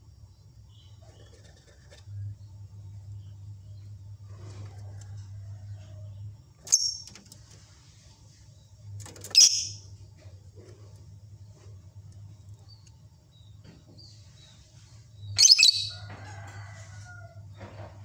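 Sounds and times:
steady low hum: 0.0s - 18.0s
bird shrill calls: 15.4s - 15.9s.

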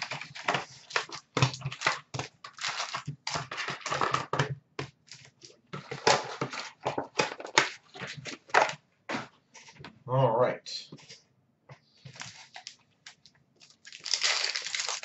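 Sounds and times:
foil packs rustling: 0.0s - 4.4s, 5.0s - 8.8s, 12.1s - 15.0s
cardboard boxes tearing: 13.9s - 15.0s.

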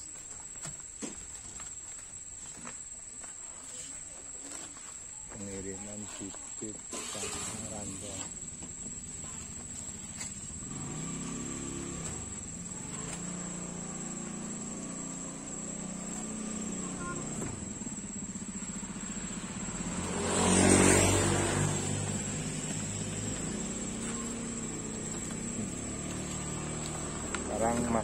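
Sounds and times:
insect chirring: 0.0s - 28.0s
motor vehicle passing: 6.9s - 28.0s.

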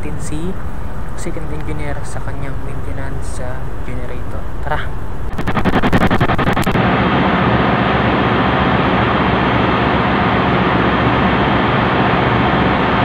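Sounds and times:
engine-room machinery drone: 0.0s - 13.0s
fast clicks: 5.3s - 6.8s.

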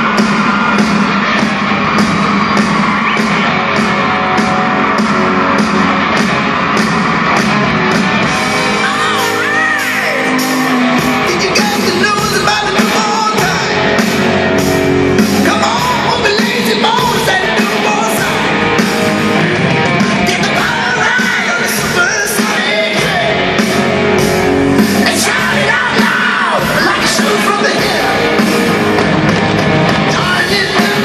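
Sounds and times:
fast steady drum beat: 0.0s - 31.0s
guitars: 0.0s - 31.0s
person singing: 8.7s - 14.2s, 15.2s - 18.6s, 20.2s - 23.6s, 24.9s - 28.7s, 30.0s - 31.0s.

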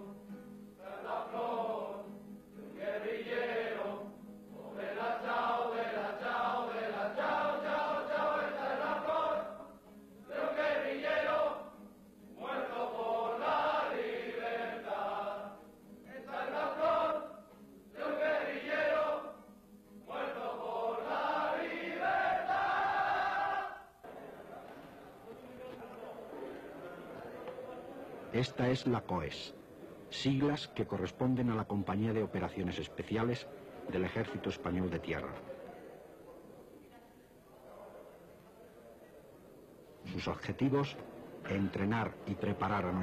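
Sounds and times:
men singing in unison: 0.8s - 9.7s, 10.3s - 11.8s, 12.4s - 19.4s, 20.1s - 23.8s.

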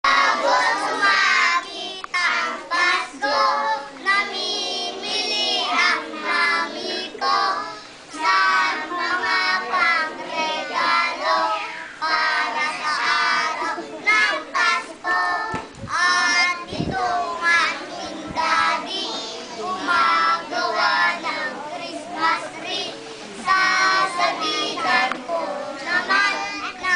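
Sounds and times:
children singing in unison: 0.0s - 26.9s.

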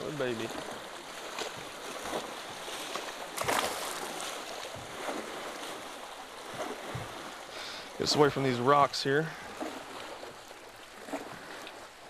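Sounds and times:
fish splashing: 0.0s - 8.0s
water lapping against boat: 0.0s - 12.0s.

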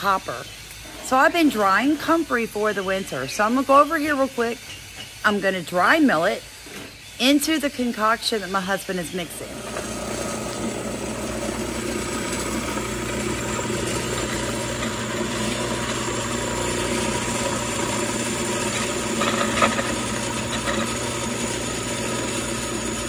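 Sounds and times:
power tool motor running: 9.2s - 23.0s.

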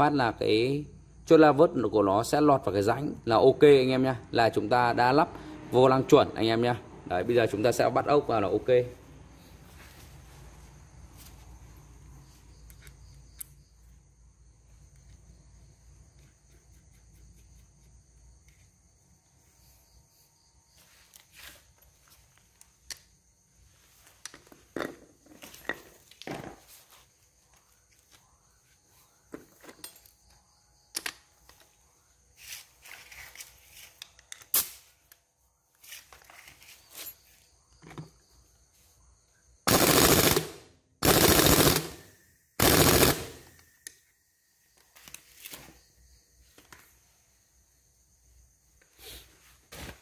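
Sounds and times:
tools clicking and knocking: 29.4s - 31.6s
sharp loud click: 34.4s - 34.9s.

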